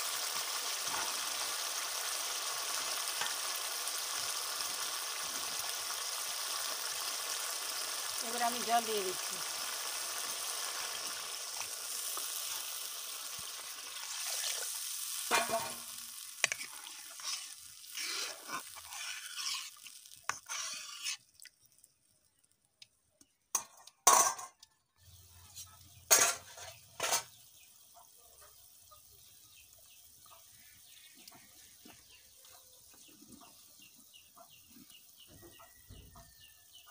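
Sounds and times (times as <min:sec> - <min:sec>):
food sizzling in pan: 0:00.0 - 0:22.5, 0:25.0 - 0:36.9
spatula scraping pan: 0:14.0 - 0:21.2.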